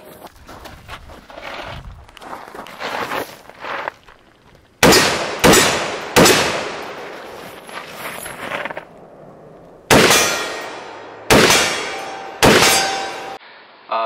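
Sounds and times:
rifle shots with echo: 0:04.8 - 0:07.0, 0:09.9 - 0:13.4.

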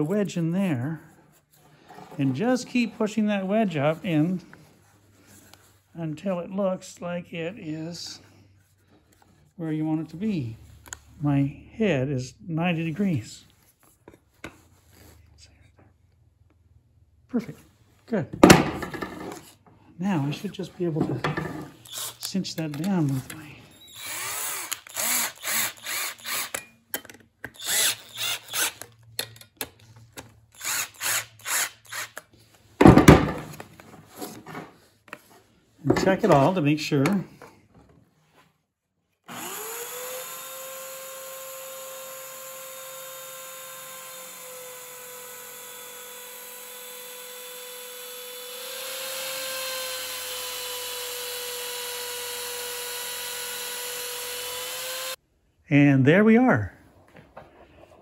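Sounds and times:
cordless drill short bursts: 0:21.8 - 0:22.3, 0:23.7 - 0:26.6, 0:27.6 - 0:28.8, 0:30.6 - 0:32.2, 0:39.3 - 0:55.2.

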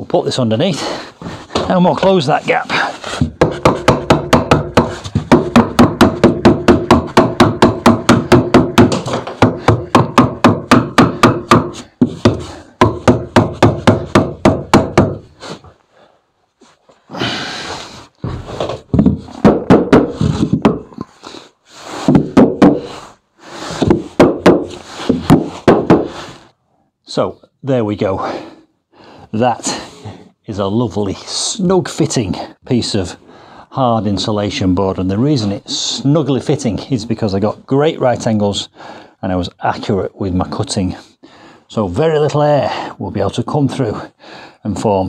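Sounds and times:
board knocking and scraping: 0:01.2 - 0:15.3, 0:18.2 - 0:21.1, 0:21.9 - 0:23.0, 0:23.6 - 0:26.4
mallet tapping on wood block: 0:03.4 - 0:15.2.

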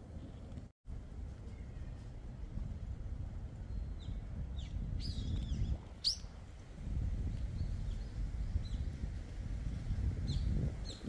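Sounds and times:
steady low rumble: 0:00.0 - 0:11.0
small birds chirping: 0:03.5 - 0:06.6, 0:10.2 - 0:11.0.

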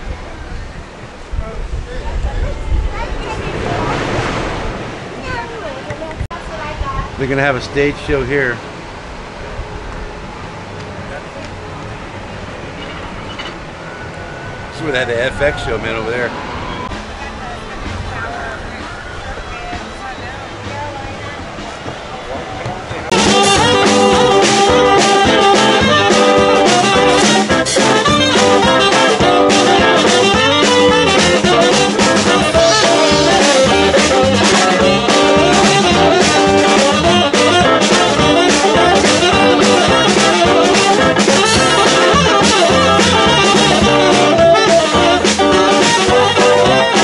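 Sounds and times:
jazz band with horns: 0:14.7 - 0:47.0
drum kit: 0:19.6 - 0:47.0.

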